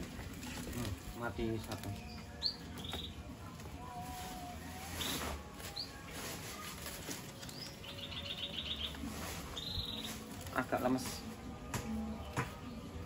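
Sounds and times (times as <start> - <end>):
small birds chirping: 0.3 - 13.0
bird trill: 7.4 - 10.3.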